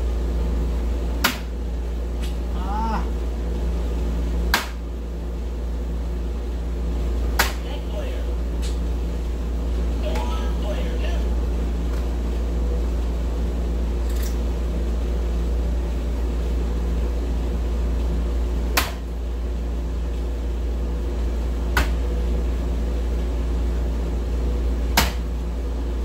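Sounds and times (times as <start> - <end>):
low hum: 0.0 - 26.0
darts striking electronic dartboard: 1.2 - 1.6, 4.5 - 4.9, 7.3 - 7.6, 18.7 - 19.1, 21.7 - 22.1, 24.9 - 25.3.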